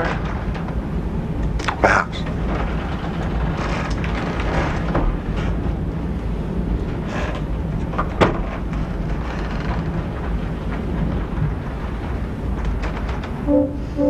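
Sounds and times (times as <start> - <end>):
wind: 0.0 - 14.0
sea noise: 11.6 - 14.0.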